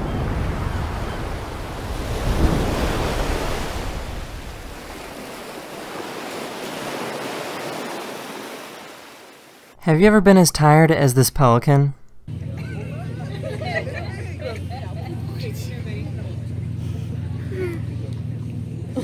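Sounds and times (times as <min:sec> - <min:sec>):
ocean waves on rocky shore: 0:00.0 - 0:09.8.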